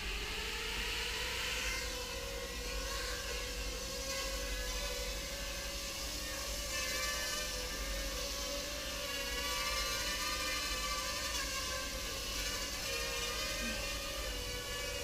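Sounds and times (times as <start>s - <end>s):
quadcopter propellers whirring: 0.0s - 15.0s.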